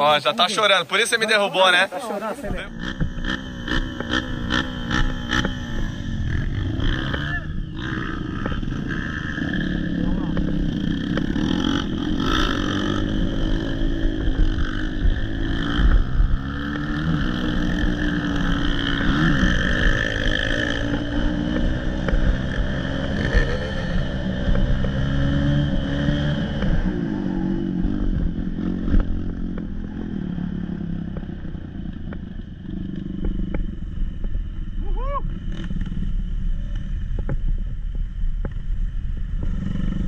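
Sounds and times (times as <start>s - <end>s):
dirt bike engine revving: 2.4s - 34.3s.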